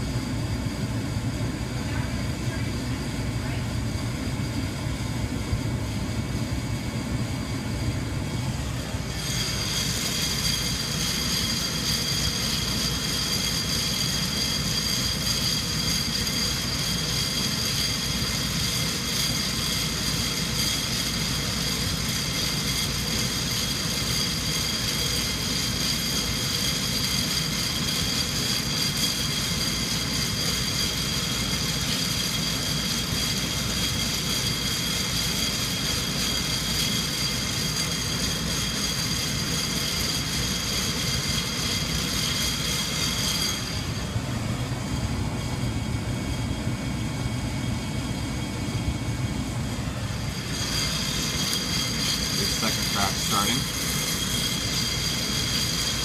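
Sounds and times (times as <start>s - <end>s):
high whine: 0.0s - 56.0s
hot-air blower rushing: 0.0s - 56.0s
coffee beans churning: 8.2s - 46.4s, 49.6s - 56.0s.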